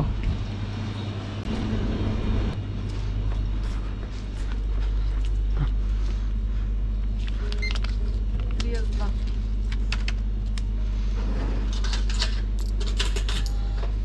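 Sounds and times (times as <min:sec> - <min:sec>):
low electrical hum: 0:00.0 - 0:14.0
footsteps: 0:02.5 - 0:06.6.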